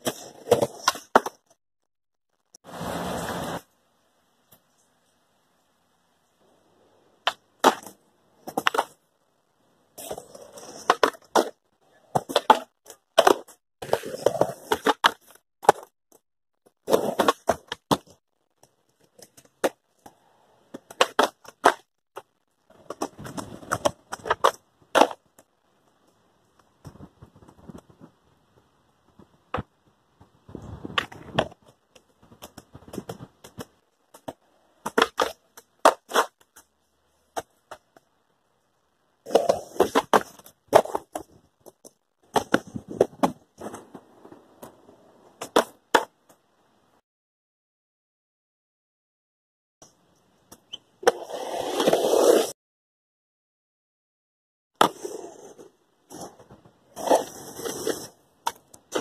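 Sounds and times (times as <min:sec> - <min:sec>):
skateboard wheels rolling: 0:00.0 - 0:01.5, 0:02.6 - 0:03.7, 0:06.4 - 0:09.1, 0:09.9 - 0:15.9, 0:16.8 - 0:38.0, 0:39.2 - 0:46.4, 0:50.5 - 0:52.6, 0:54.8 - 0:59.0
skateboard pops and clacks: 0:00.0 - 0:01.6, 0:07.2 - 0:09.0, 0:10.0 - 0:15.9, 0:20.7 - 0:25.5, 0:30.8 - 0:36.6, 0:39.3 - 0:44.7, 0:45.4 - 0:46.4.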